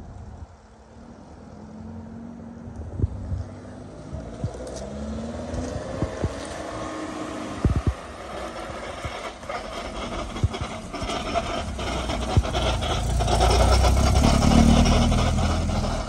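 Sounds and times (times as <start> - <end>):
car driving slowly past: 0.1 - 16.0.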